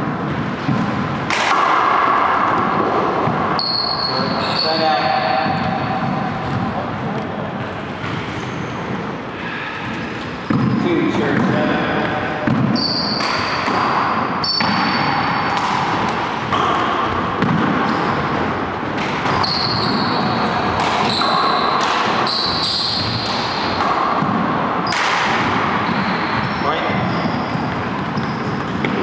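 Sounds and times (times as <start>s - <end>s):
sneakers squeaking on hardwood: 3.2s - 6.8s, 7.4s - 9.2s, 10.0s - 11.6s, 12.5s - 15.6s, 19.1s - 23.8s, 24.8s - 29.0s.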